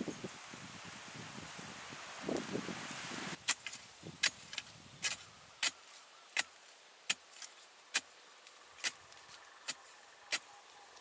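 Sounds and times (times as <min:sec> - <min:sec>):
hands rustling in loose earth: 0:00.0 - 0:11.0
digging stick striking soil: 0:03.4 - 0:11.0.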